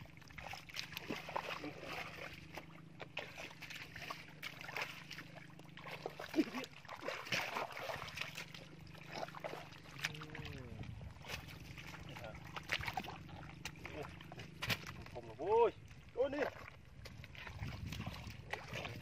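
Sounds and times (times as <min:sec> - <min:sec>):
feet splashing through muddy water: 0:00.0 - 0:19.0
low hum: 0:00.0 - 0:19.0
mud slaps and clicks: 0:00.3 - 0:10.6, 0:11.2 - 0:15.3, 0:15.9 - 0:19.0.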